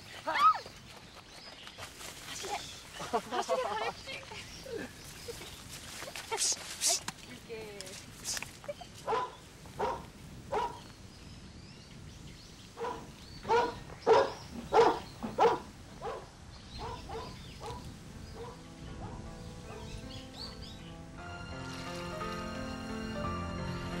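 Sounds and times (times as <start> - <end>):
dog barking: 9.1 - 10.8, 12.8 - 20.0.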